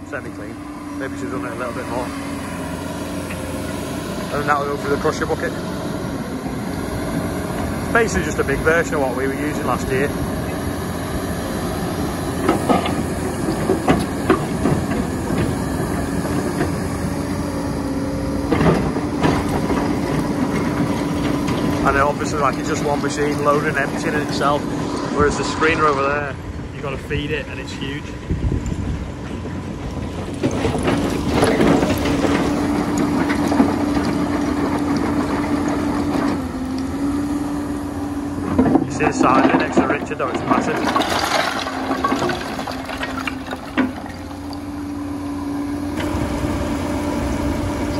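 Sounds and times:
excavator running: 0:00.0 - 0:47.9
bucket clattering through rubble: 0:30.4 - 0:35.4, 0:38.6 - 0:44.6.

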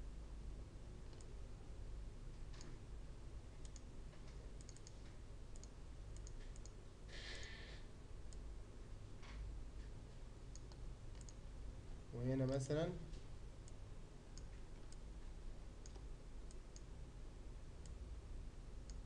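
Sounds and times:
low steady hum: 0:00.0 - 0:19.0
faint mouse clicks: 0:01.1 - 0:01.4, 0:03.6 - 0:07.6, 0:09.2 - 0:11.4, 0:12.4 - 0:15.0, 0:15.8 - 0:16.9, 0:17.8 - 0:18.0.

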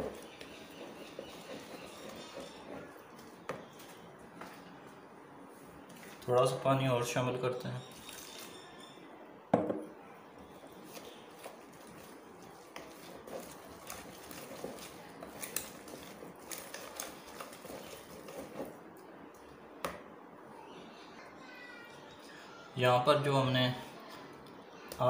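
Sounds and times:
whisk scraping a plastic bowl: 0:00.0 - 0:04.6, 0:10.5 - 0:18.8.

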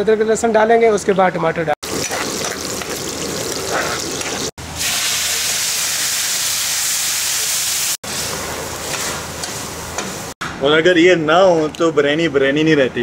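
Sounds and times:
onions sizzling in a frying pan: 0:01.8 - 0:10.3
loud sizzling hiss: 0:01.9 - 0:09.5.

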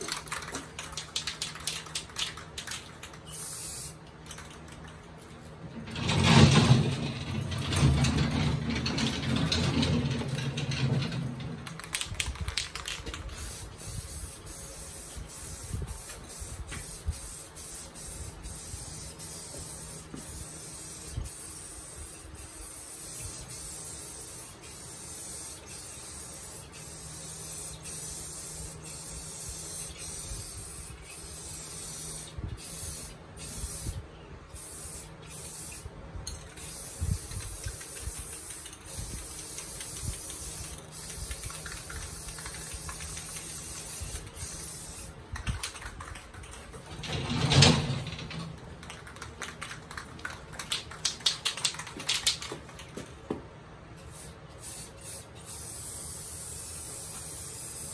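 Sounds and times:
rapid clicks of shaken can: 0:00.0 - 0:06.1, 0:09.2 - 0:33.8, 0:36.3 - 0:47.1, 0:48.2 - 0:53.2
spray can hissing: 0:00.1 - 0:04.5, 0:11.6 - 0:46.2, 0:54.0 - 0:57.9.

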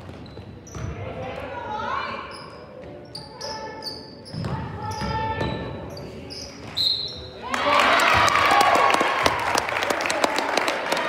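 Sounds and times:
crowd cheering and shouting: 0:07.4 - 0:11.0.

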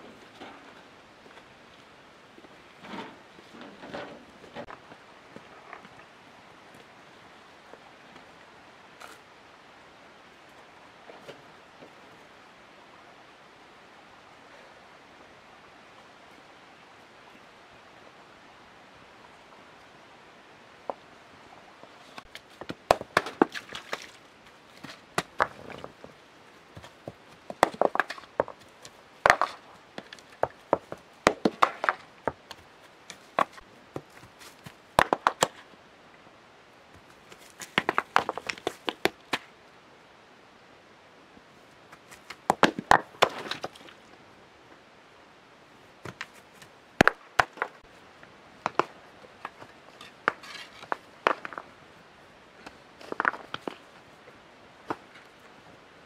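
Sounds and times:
stones clacking together: 0:22.2 - 0:26.1, 0:26.8 - 0:35.7, 0:37.0 - 0:39.5, 0:42.0 - 0:44.0, 0:46.0 - 0:47.8, 0:48.6 - 0:51.8, 0:52.6 - 0:53.9.

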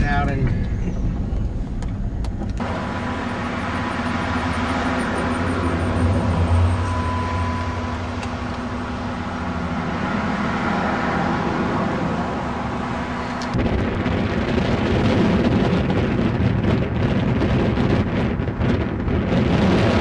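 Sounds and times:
outdoor rumble and hiss: 0:00.0 - 0:17.4
wind buffeting microphone: 0:11.5 - 0:20.0.

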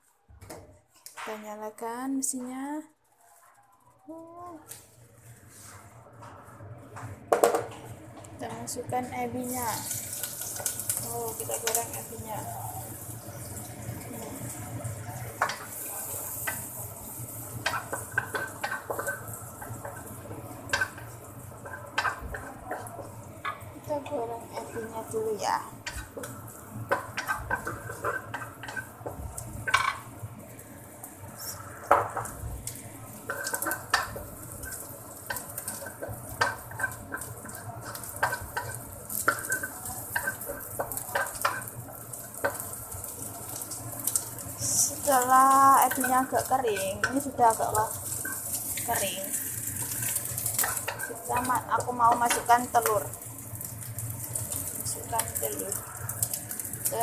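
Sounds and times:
shrimp sizzling in oil: 0:06.6 - 0:57.0
wooden spatula scraping a wok: 0:15.1 - 0:25.2, 0:25.8 - 0:30.0, 0:33.2 - 0:53.0
wooden spatula scraping a pan: 0:33.2 - 0:43.4.

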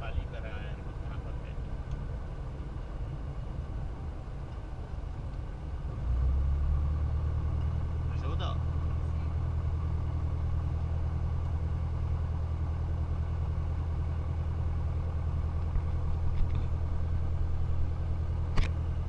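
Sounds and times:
airplane piston engine idling: 0:07.3 - 0:19.0
sharp click: 0:18.5 - 0:18.8.

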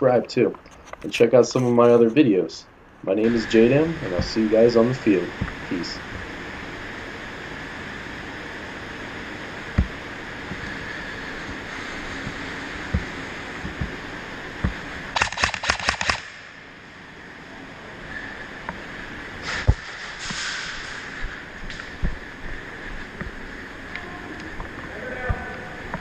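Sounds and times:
steady hiss: 0:00.0 - 0:26.0
airsoft rifle full-auto burst: 0:15.1 - 0:16.4.

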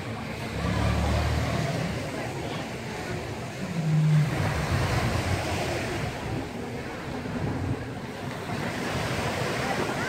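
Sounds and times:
sea surf washing on beach: 0:00.0 - 0:10.0
wind on microphone: 0:03.1 - 0:10.0.

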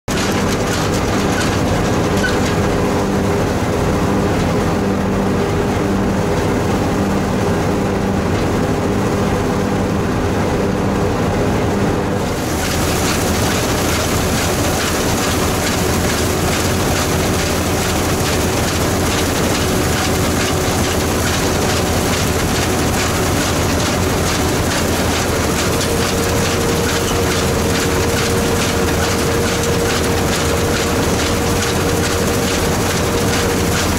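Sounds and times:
combine harvester engine running: 0:00.0 - 0:33.9
threshing gear taking in wheat: 0:12.3 - 0:33.9.

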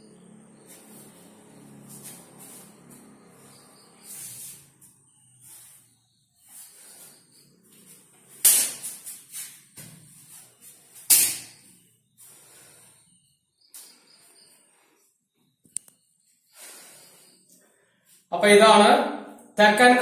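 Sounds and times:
sharp strike smacks: 0:08.4 - 0:09.0, 0:11.1 - 0:11.6.

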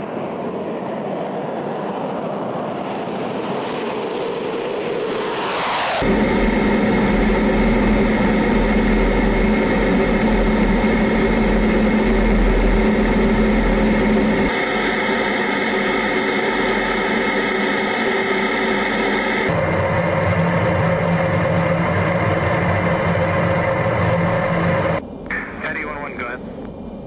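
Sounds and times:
jet engine and airflow in cockpit: 0:00.0 - 0:27.0
steady hum: 0:06.0 - 0:27.0.

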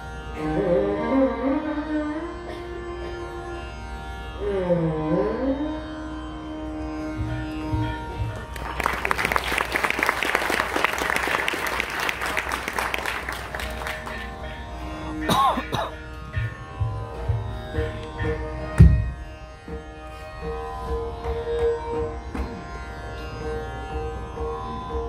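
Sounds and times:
tanpura drone: 0:00.0 - 0:25.0
audience applause: 0:08.2 - 0:14.6.

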